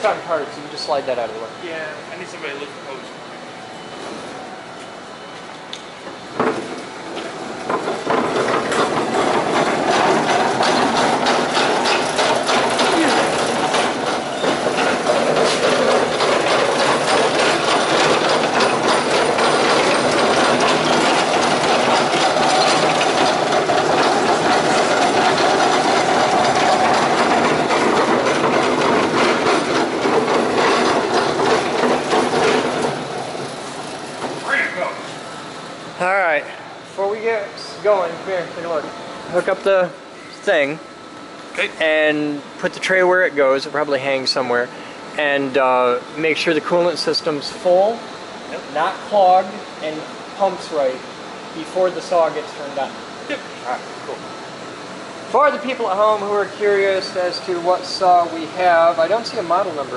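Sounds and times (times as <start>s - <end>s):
bandsaw wheels rattling on concrete: 7.7s - 35.0s.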